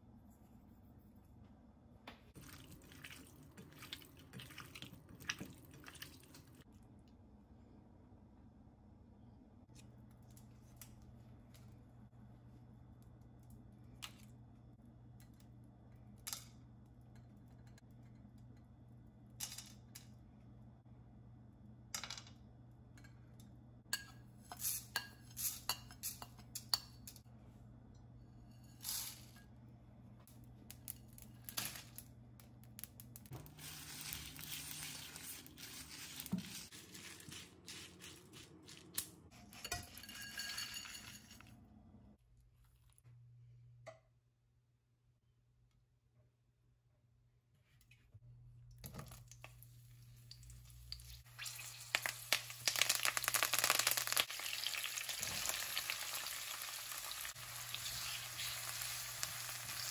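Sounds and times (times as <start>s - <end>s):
spices clicking in a pan: 50.3s - 59.9s.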